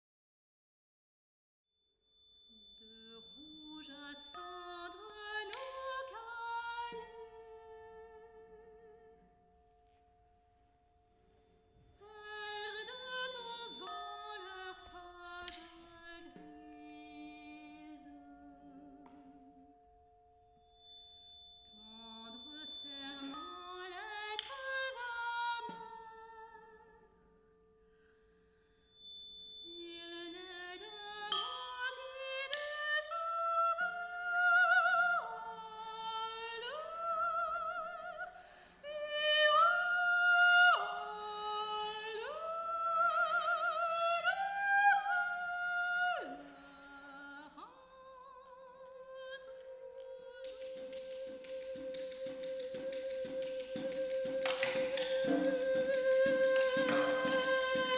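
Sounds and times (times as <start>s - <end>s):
soprano voice singing: 2.9s - 9.2s, 12.0s - 19.7s, 29.8s - 57.9s
steady held tones: 50.4s - 57.9s.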